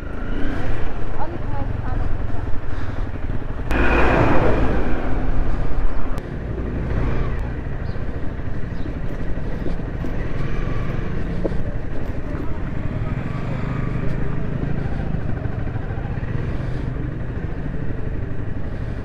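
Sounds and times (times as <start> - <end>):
car engine and road rumble: 0.0 - 19.0
rushing noise passing: 3.7 - 7.3.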